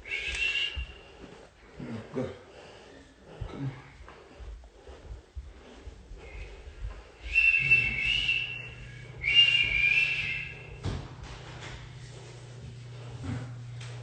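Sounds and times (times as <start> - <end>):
high whistling tone: 0.0 - 1.1, 7.2 - 10.8
low steady hum: 0.0 - 14.0.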